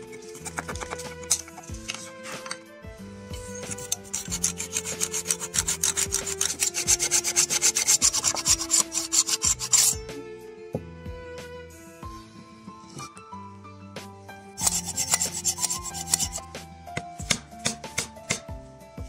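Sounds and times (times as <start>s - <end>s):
hand saw rasping through wood: 0.0s - 2.6s, 3.4s - 10.0s, 14.6s - 18.4s
quiet background music: 0.0s - 19.0s.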